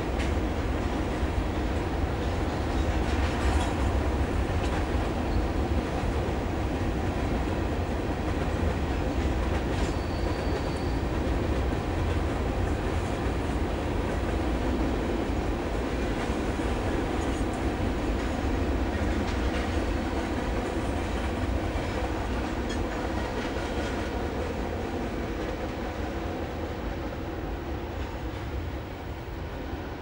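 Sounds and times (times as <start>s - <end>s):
freight train rumble: 0.0s - 30.0s
high wheel squeal: 9.8s - 11.1s.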